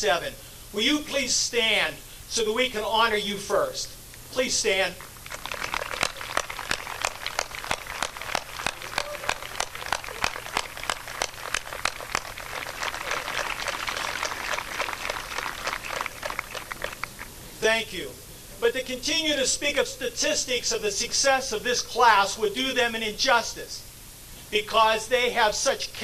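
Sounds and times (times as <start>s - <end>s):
large crowd applauding: 5.0s - 17.3s.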